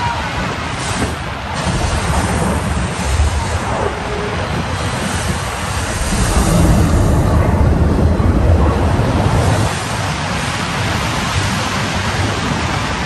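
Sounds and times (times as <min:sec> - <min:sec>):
ocean surf rushing: 0:00.0 - 0:13.0
wind: 0:00.0 - 0:13.0
heavy low rumble: 0:01.5 - 0:11.8.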